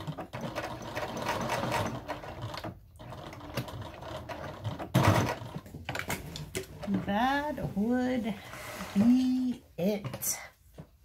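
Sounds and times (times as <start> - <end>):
sewing machine stitching: 0.0 - 7.1.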